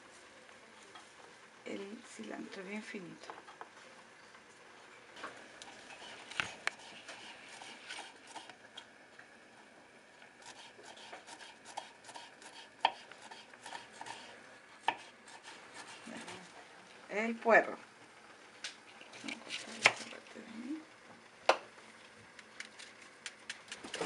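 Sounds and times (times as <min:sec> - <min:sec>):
knife chopping on wooden board: 0:10.5 - 0:14.2.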